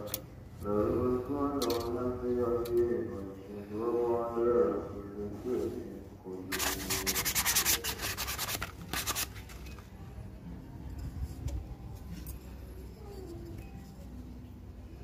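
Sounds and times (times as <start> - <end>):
rubbing strokes on wood: 6.5 - 9.2.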